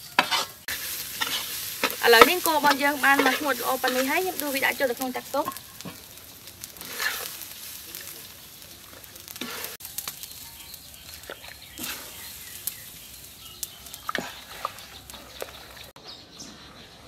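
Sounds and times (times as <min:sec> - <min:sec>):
ladle stirring: 0:00.0 - 0:04.6
broth simmering: 0:00.0 - 0:16.0
rice sizzling in a wok: 0:00.0 - 0:16.0.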